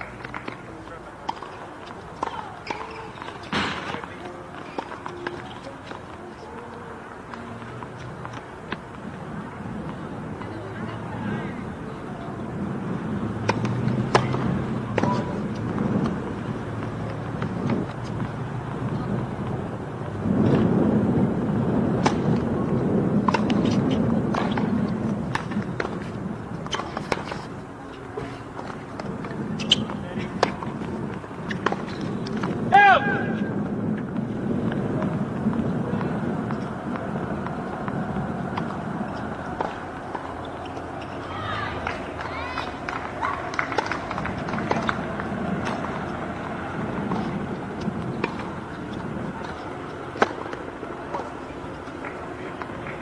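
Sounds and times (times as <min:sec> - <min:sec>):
outdoor background hum: 0:00.0 - 0:53.0
players' footwork: 0:00.0 - 0:53.0
racket striking ball: 0:13.4 - 0:18.8, 0:21.9 - 0:22.5, 0:28.2 - 0:34.0, 0:41.9 - 0:53.0.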